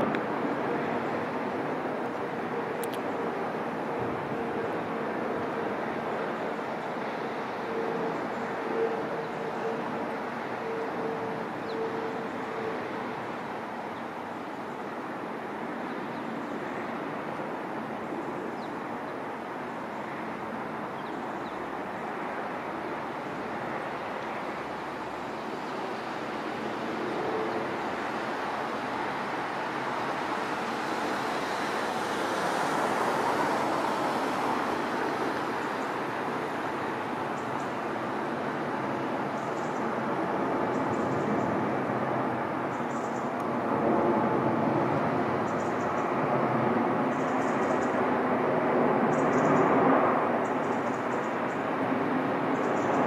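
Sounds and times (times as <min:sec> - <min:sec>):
faint steady tone: 0:01.9 - 0:40.1.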